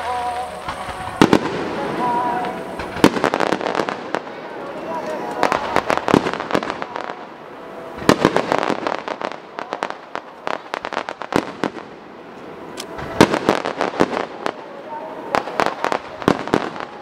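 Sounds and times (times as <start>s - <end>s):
firework shells bursting: 0.0s - 7.0s.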